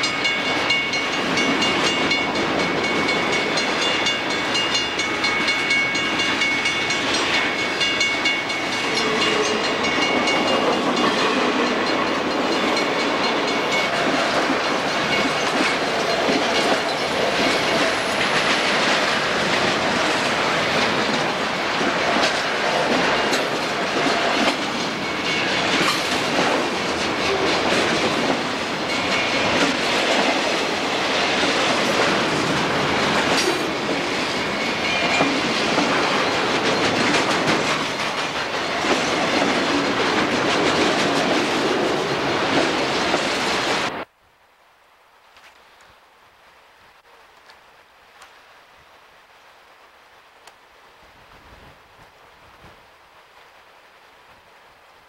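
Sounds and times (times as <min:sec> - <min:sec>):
high steady ringing: 0:00.0 - 0:18.2, 0:24.8 - 0:26.0
freight train wheels clattering: 0:00.0 - 0:43.9.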